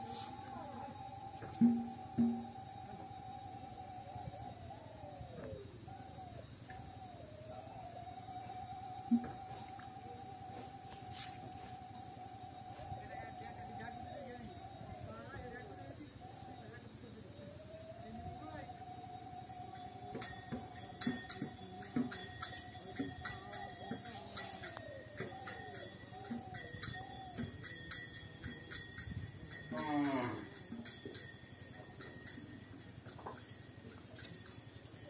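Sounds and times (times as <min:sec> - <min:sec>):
cow mooing: 0:29.7 - 0:30.5.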